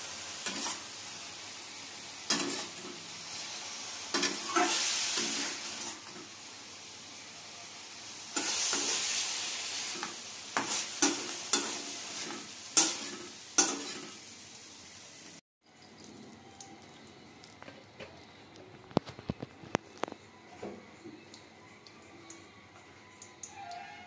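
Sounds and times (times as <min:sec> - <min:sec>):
mushrooms sizzling in a wok: 0:00.0 - 0:18.3
metal spatula scraping a pan: 0:02.3 - 0:03.0, 0:04.1 - 0:06.2.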